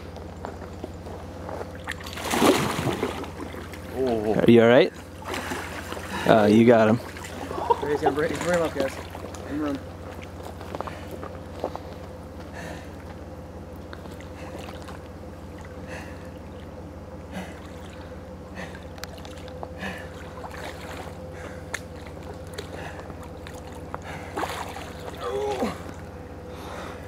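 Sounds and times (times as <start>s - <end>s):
low hum: 0.0s - 27.0s
shallow water sloshing: 1.5s - 4.2s, 5.0s - 11.8s, 13.9s - 26.1s
person breathing: 10.8s - 13.0s, 26.5s - 27.0s.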